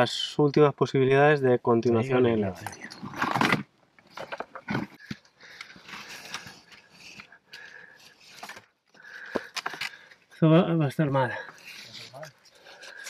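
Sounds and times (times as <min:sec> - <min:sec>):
person breathing hard: 0:05.1 - 0:10.3, 0:12.5 - 0:13.0.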